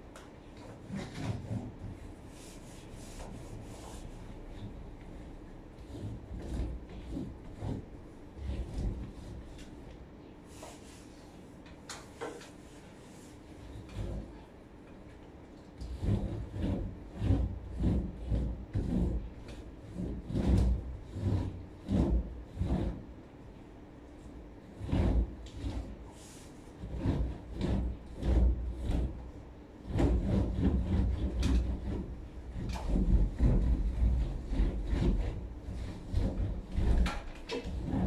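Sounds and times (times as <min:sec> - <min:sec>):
cloth rubbing over wood: 0:00.9 - 0:04.6, 0:10.5 - 0:11.3.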